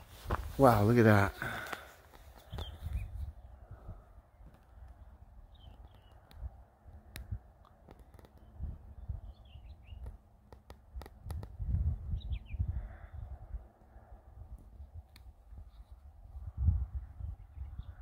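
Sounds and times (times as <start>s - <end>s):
wind rumble on microphone: 2.2s - 18.0s
bird chirps: 2.4s - 3.5s, 5.5s - 6.3s, 8.4s - 10.2s
sharp clicks: 7.1s - 8.5s.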